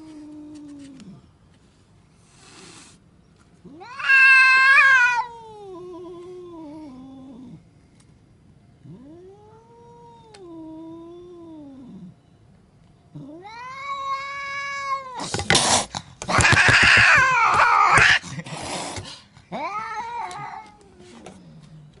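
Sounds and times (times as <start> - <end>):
cat yowling: 3.7 - 7.6, 8.8 - 12.1, 13.2 - 15.4, 16.3 - 18.2, 19.5 - 21.2
rapid knocks: 16.2 - 17.5.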